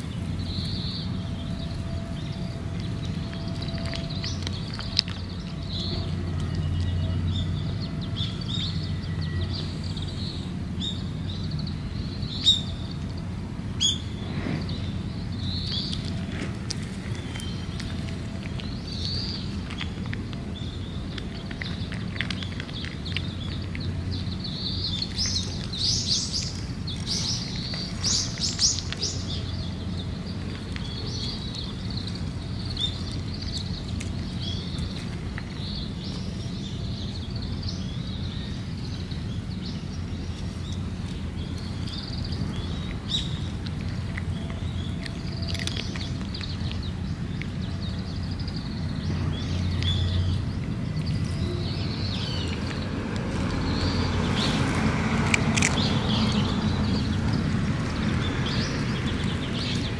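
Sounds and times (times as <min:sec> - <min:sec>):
small birds chirping: 0:00.0 - 0:59.9
steady low rumble: 0:00.0 - 0:59.9
cat eating dry food from metal dish: 0:15.8 - 0:37.1.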